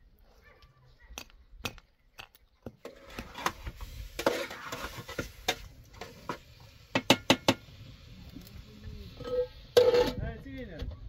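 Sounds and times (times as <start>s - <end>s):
metal spatula scraping a pot: 2.8s - 6.4s, 9.2s - 10.2s.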